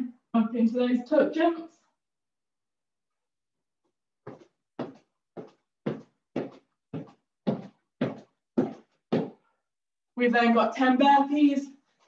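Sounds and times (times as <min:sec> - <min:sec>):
feet thudding on floor: 0:04.3 - 0:09.4.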